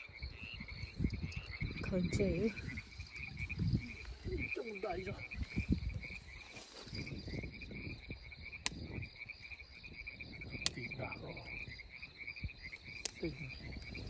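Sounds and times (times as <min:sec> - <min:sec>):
frogs and insects calling: 0:00.0 - 0:14.0
sharp clicks: 0:10.6 - 0:10.9.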